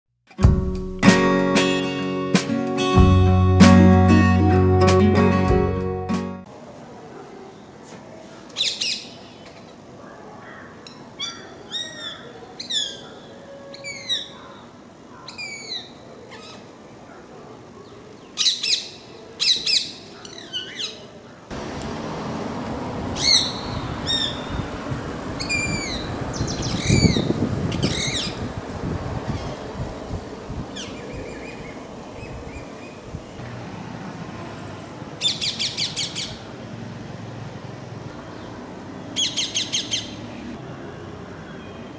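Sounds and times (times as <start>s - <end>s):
steady outdoor hiss: 0.3s - 41.9s
parakeets squawking: 35.2s - 36.4s, 39.2s - 40.2s.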